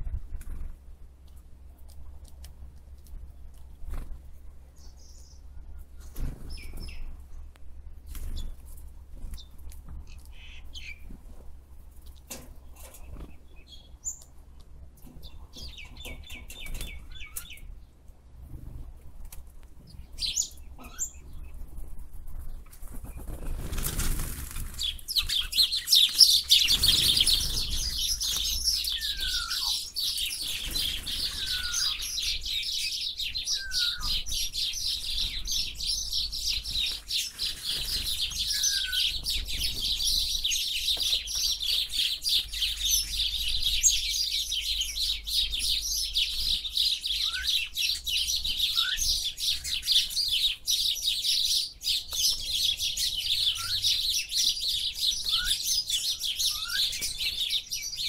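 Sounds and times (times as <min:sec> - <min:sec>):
birds chirping: 0:03.3 - 0:11.2, 0:12.1 - 0:18.8, 0:19.7 - 0:58.0
whistled bird notes: 0:25.2 - 0:34.8, 0:38.4 - 0:39.2, 0:47.1 - 0:48.0, 0:48.6 - 0:50.1, 0:53.3 - 0:54.4, 0:55.2 - 0:58.0.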